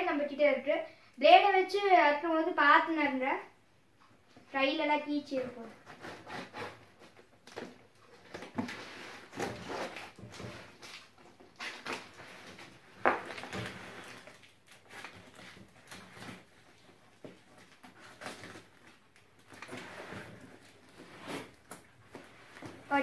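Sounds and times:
blade slitting cardboard box: 8.4 - 10.8.

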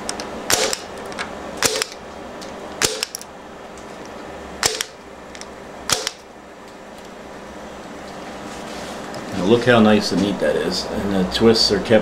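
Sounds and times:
punch-down tool snapping: 0.0 - 2.0, 2.8 - 3.3, 4.6 - 6.3.

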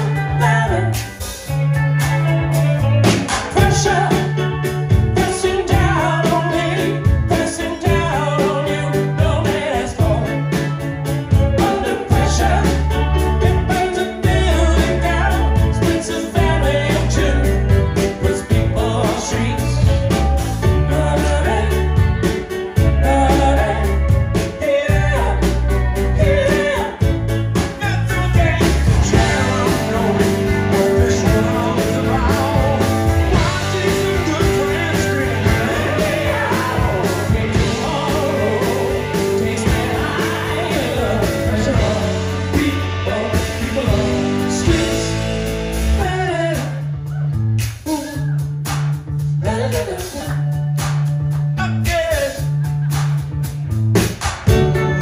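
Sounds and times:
woman singing: 0.0 - 1.2
man singing: 0.0 - 48.4, 49.4 - 50.6, 51.6 - 52.7
live rock band playing: 0.0 - 55.0.

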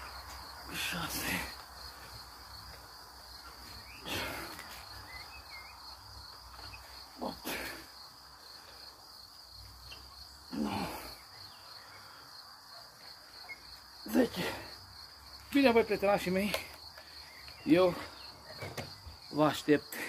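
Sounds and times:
crickets chirring: 0.0 - 20.0
man grunting with effort: 7.2 - 7.9, 10.5 - 11.2.

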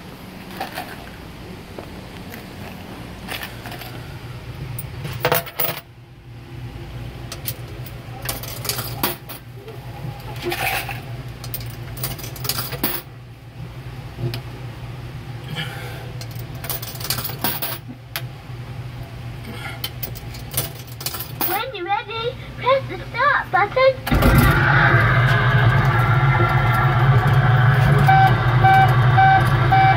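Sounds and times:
steady low hum: 0.0 - 29.9
coins clinking through coin mechanism: 5.0 - 5.9, 7.3 - 9.4, 10.4 - 13.1, 16.2 - 17.9, 20.0 - 21.7.

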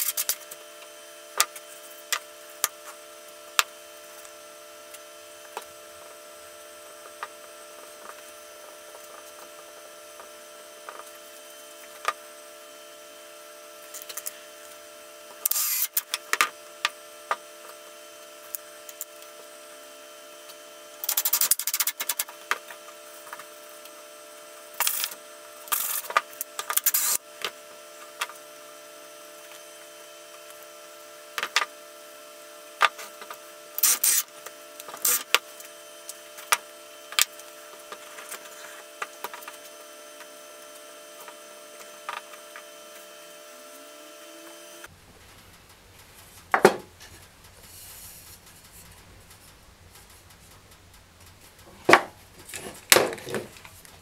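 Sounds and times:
steady hum: 0.0 - 54.0
cordless drill driving screws: 15.4 - 16.1, 33.8 - 35.4
plywood parts knocking on workbench: 46.5 - 46.9, 51.8 - 53.6.

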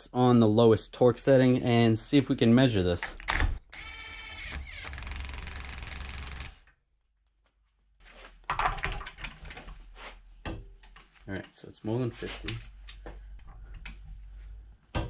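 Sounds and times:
clicks and knocks of tools: 10.4 - 11.6.

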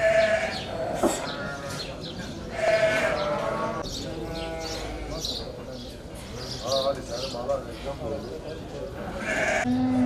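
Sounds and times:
sheep and goats bleating: 0.0 - 1.8, 2.5 - 5.2, 9.1 - 10.0.

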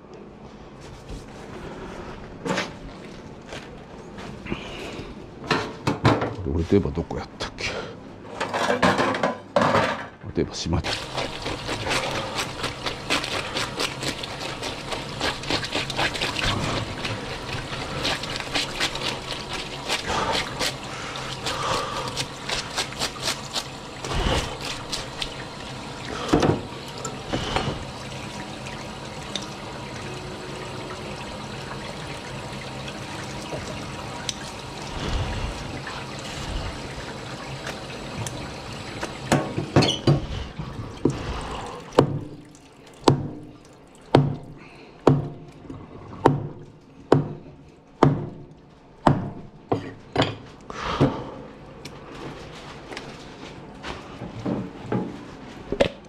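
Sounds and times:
tap water running: 10.7 - 46.8
knife scraping fish: 10.9 - 25.3.

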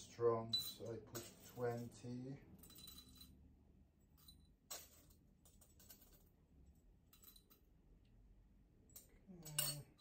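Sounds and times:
coffee beans clicking and rattling: 4.1 - 7.8.

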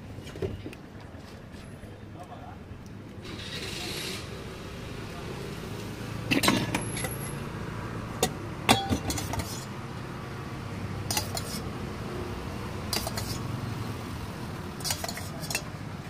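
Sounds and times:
steel utensils clinking: 8.7 - 9.7, 11.1 - 11.6, 12.9 - 13.4, 14.8 - 15.7.

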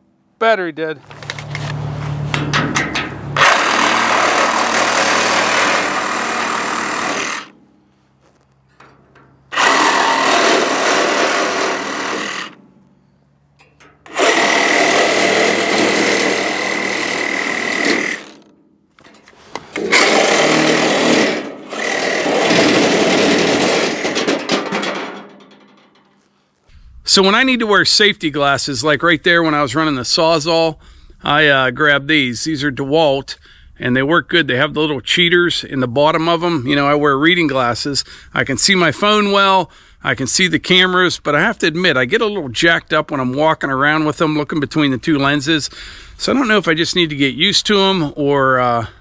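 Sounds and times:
reciprocating saw cutting steel tube: 2.3 - 7.6, 9.5 - 12.6, 14.0 - 24.8.

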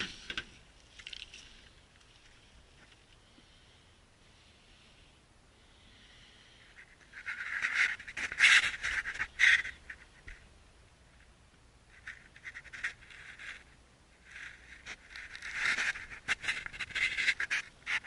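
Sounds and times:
person breathing heavily: 3.2 - 7.0.

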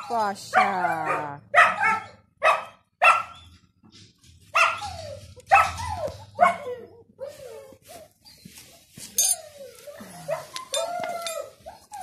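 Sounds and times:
puppies yapping: 4.5 - 12.0.

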